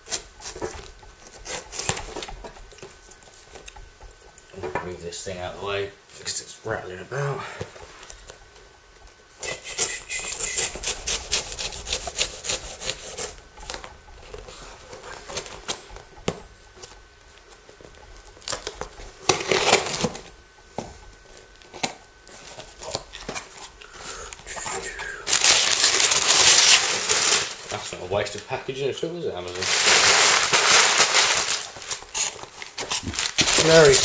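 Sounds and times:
knife slitting packing tape: 0:09.4 - 0:13.4, 0:25.3 - 0:27.7
packing paper rustling: 0:21.3 - 0:28.6, 0:29.3 - 0:34.0.

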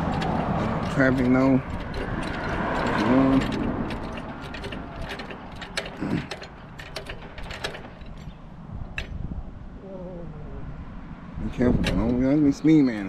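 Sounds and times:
floor jack metallic clicks: 0:00.0 - 0:08.4.

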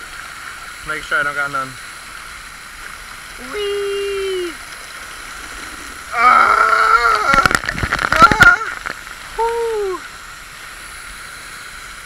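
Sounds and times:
fountain spray hissing on water: 0:00.0 - 0:12.0
man shouting whee: 0:03.4 - 0:04.6, 0:06.1 - 0:07.4, 0:09.4 - 0:10.0.

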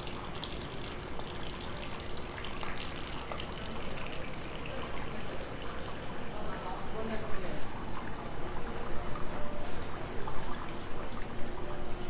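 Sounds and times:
water running into stone basin: 0:00.0 - 0:06.4.

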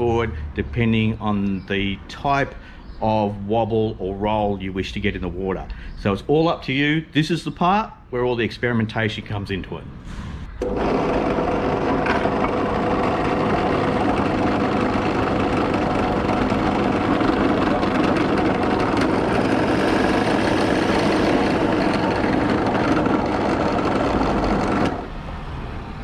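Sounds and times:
drill press boring into wood: 0:10.6 - 0:25.1.

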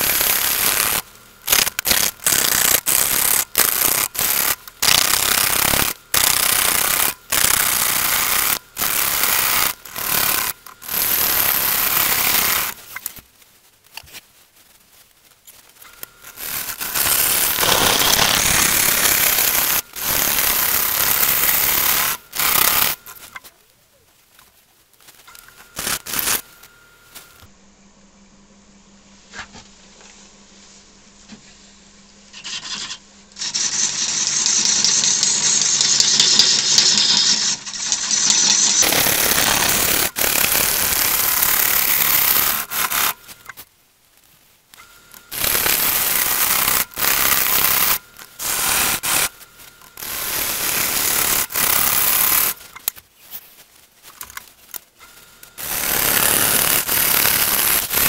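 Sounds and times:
lathe tool cutting wood: 0:00.0 - 0:12.8, 0:16.2 - 0:23.2, 0:38.5 - 0:43.2, 0:45.3 - 0:52.6, 0:55.5 - 0:58.0.

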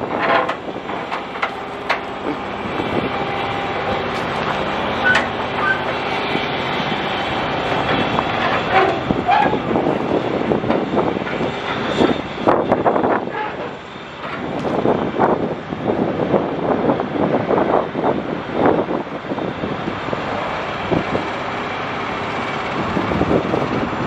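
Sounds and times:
diesel truck engine running: 0:00.0 - 0:24.0.

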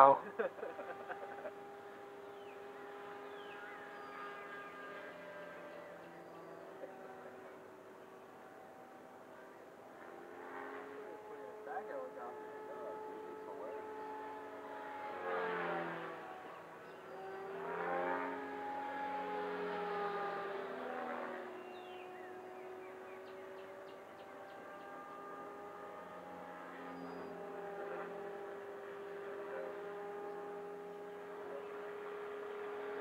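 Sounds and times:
model aircraft motor whining: 0:00.0 - 0:02.0.

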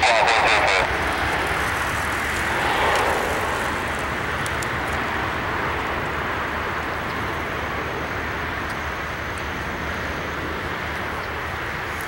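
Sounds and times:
jet engine rushing: 0:00.0 - 0:05.8.

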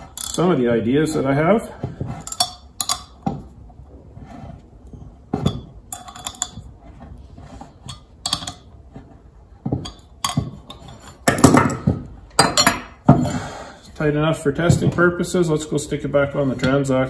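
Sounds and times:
wrench clanking on steel bolts: 0:00.0 - 0:00.6, 0:02.2 - 0:03.4, 0:07.8 - 0:08.7.

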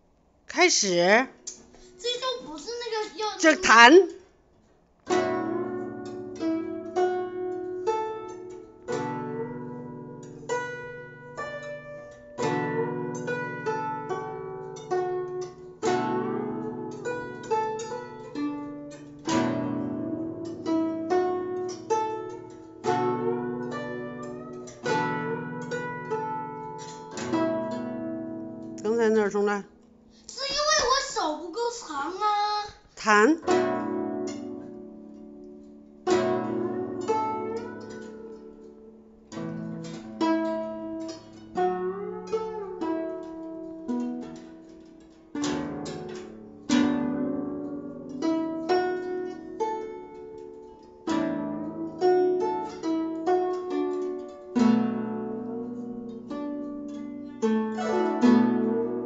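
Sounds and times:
guzheng plucked notes: 0:05.0 - 0:32.2, 0:33.4 - 0:59.0.

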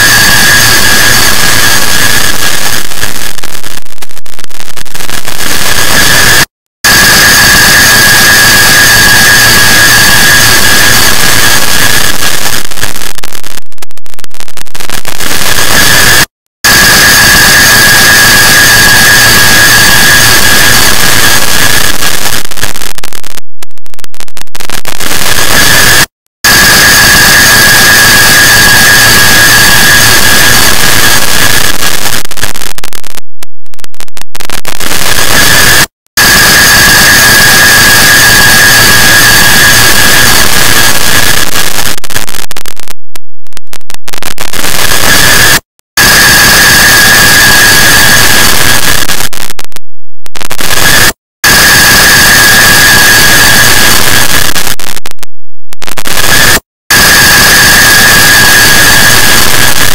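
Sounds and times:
steady high whistle: 0:05.4 - 0:12.2, 0:15.3 - 0:21.8, 0:25.3 - 0:31.3, 0:35.1 - 0:41.3, 0:44.9 - 0:48.9.

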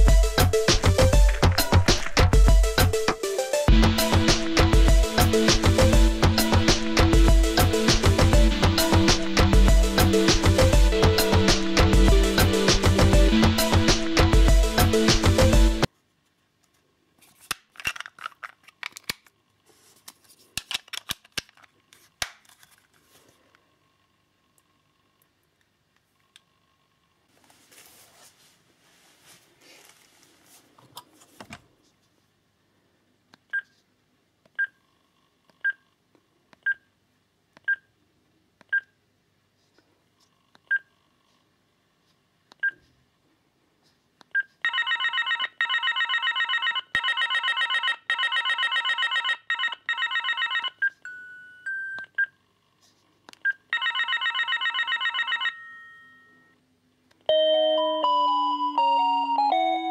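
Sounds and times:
phone trilling ring: 0:44.7 - 0:51.8, 0:53.8 - 0:56.6
melodic ringtone: 0:44.7 - 0:51.9, 0:53.8 - 0:56.5, 0:57.3 - 0:59.9.

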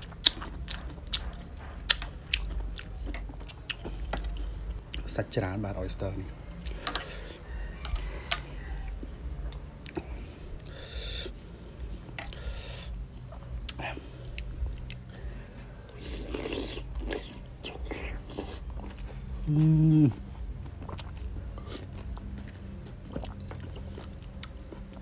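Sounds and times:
chewing: 0:00.0 - 0:10.8, 0:11.7 - 0:25.0
person humming mm: 0:19.4 - 0:20.3.

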